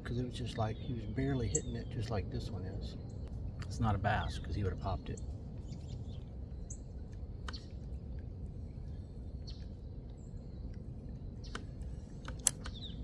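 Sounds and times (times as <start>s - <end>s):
bird chirps: 0.0s - 13.0s
low rumble: 0.0s - 13.0s
sharp clicks: 7.1s - 7.7s, 11.4s - 13.0s.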